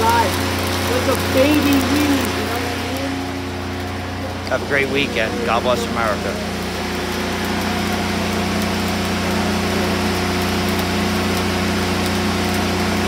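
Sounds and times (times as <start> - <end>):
engine-like hum: 0.0 - 13.0
welding arc crackling: 0.0 - 13.0.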